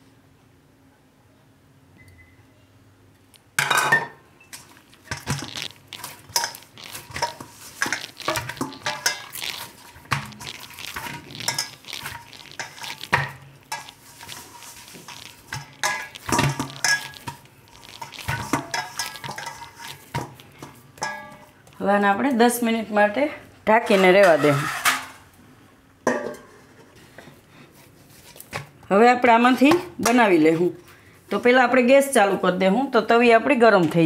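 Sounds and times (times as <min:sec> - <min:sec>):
hands kneading dough: 0:04.6 - 0:22.3, 0:27.2 - 0:28.8
metal bowl knocking: 0:21.0 - 0:21.5.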